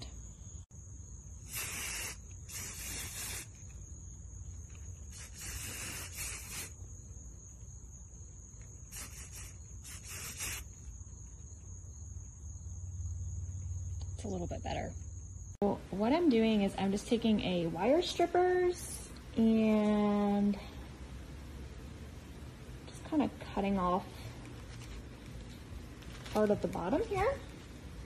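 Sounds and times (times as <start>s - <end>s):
spray can hissing: 1.4s - 3.6s, 5.1s - 6.8s, 8.9s - 10.8s.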